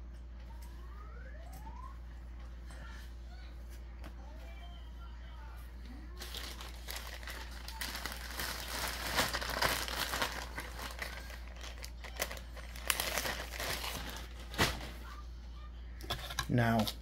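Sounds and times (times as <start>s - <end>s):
plastic bag crinkling: 6.1s - 15.0s.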